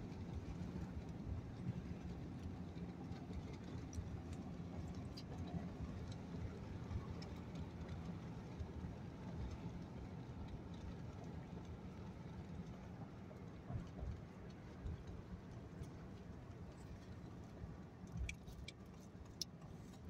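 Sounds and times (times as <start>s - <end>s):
truck engine and tyre rumble: 0.0s - 20.0s.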